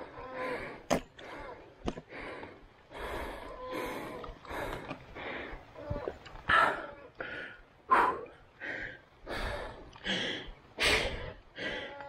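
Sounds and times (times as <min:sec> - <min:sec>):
person panting hard: 0:00.0 - 0:12.0.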